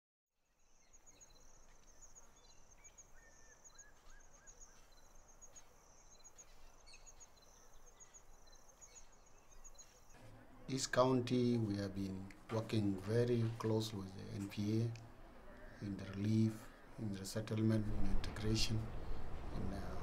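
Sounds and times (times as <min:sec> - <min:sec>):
short bird calls: 0:15.3 - 0:17.0.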